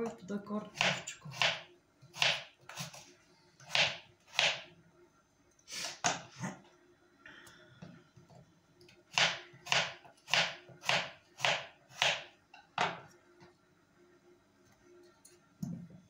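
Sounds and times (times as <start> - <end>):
knife cutting potato on wooden board: 0.7 - 4.7, 9.1 - 13.0.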